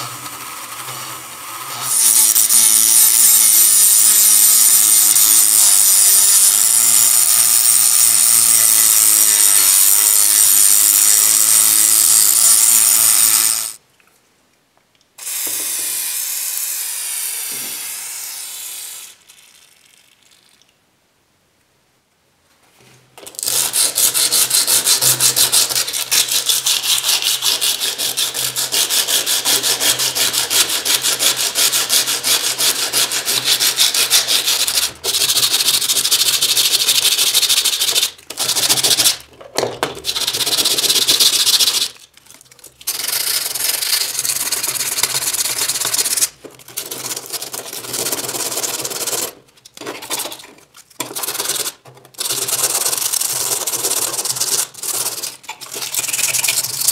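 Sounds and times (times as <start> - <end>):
sandpaper rasping on metal: 0.0 - 11.6, 23.4 - 39.2.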